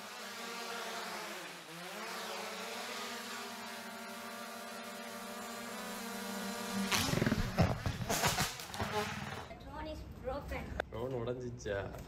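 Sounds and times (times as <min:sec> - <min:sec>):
drone propellers buzzing: 0:00.0 - 0:09.5.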